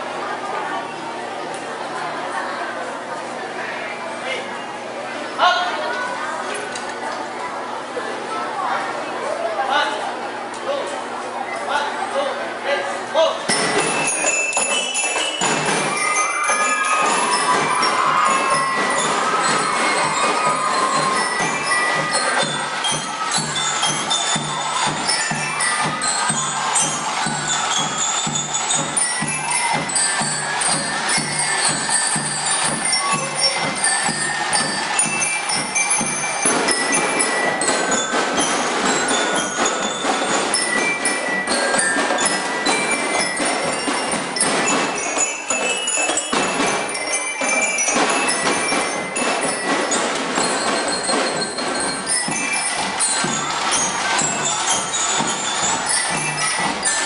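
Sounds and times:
bell lyres playing melody: 13.5s - 57.0s
marching drum beat: 13.5s - 57.0s.

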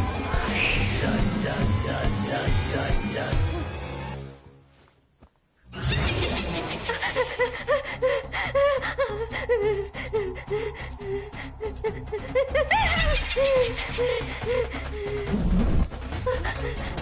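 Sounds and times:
woman gasping and whimpering: 6.9s - 17.0s.

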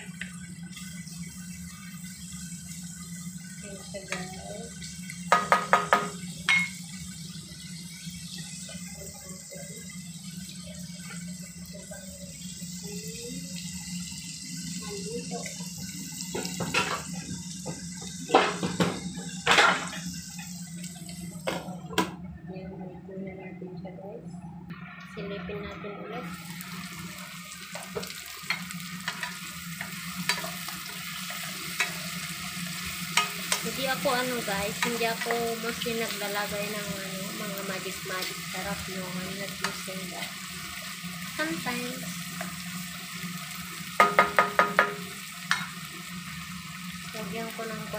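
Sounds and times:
vegetables stir-frying hiss: 0.0s - 22.1s, 25.0s - 47.9s
wooden spatula knocking frying pan: 5.3s - 6.7s, 44.0s - 45.6s
low steady hum: 6.1s - 43.8s.

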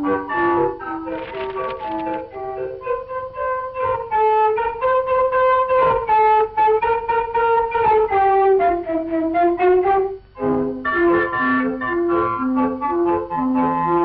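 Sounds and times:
woodwinds playing cartoon music: 5.8s - 14.0s.

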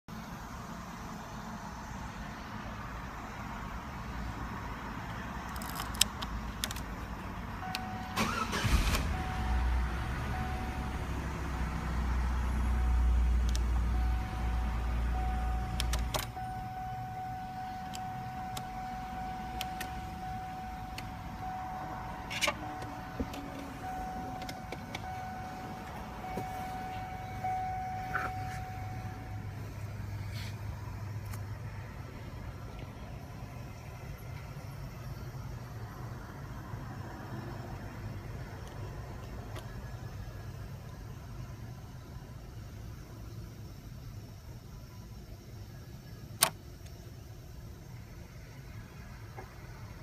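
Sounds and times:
steady high electronic tone: 12.6s - 29.9s
ignition lock clicks and knocks: 15.6s - 16.4s, 22.3s - 25.1s.

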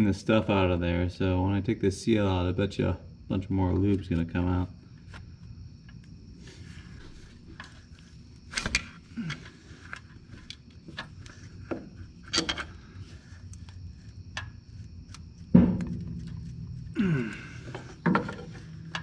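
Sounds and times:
metal tool knocking and scraping: 11.7s - 12.8s, 15.5s - 16.8s, 17.7s - 19.0s.

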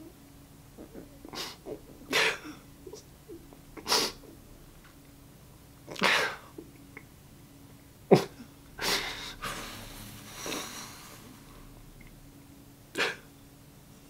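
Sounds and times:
sniffs: 8.8s - 11.6s.

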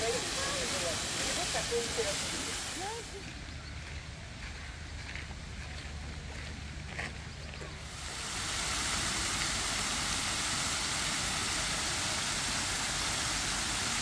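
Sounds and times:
fountain water rushing and splashing: 0.0s - 3.4s, 7.5s - 14.0s.

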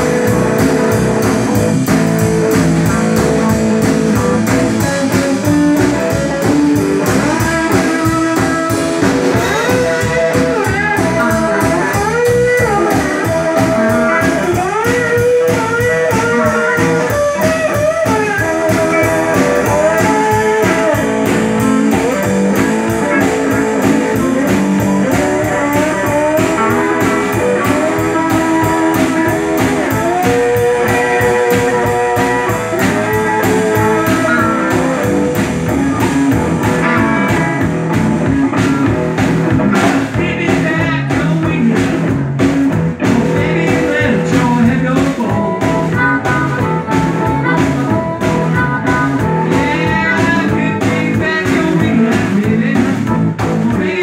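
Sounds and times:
drum kit beat: 0.0s - 54.0s
electric guitars: 0.0s - 54.0s
amplified harmonica: 3.3s - 37.7s, 45.4s - 51.1s.

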